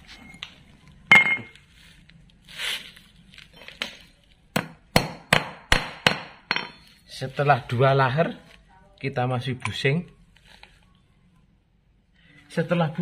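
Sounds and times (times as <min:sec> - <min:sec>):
hammer striking steel: 0:04.6 - 0:06.9.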